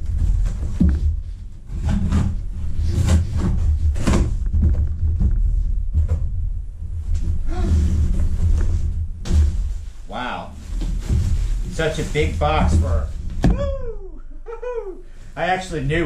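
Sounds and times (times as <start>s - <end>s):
steady low hum: 0.0s - 16.0s
cardboard flaps scraping and rustling: 10.6s - 13.4s.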